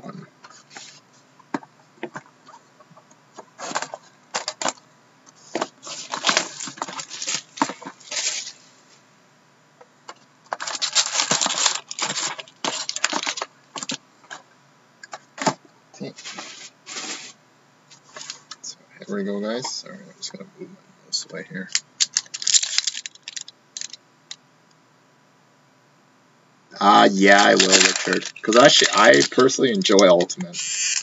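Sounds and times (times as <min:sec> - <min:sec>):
shrink wrap crinkling and tearing: 0:05.8 - 0:08.5, 0:10.6 - 0:14.0, 0:21.7 - 0:24.0, 0:26.9 - 0:31.0.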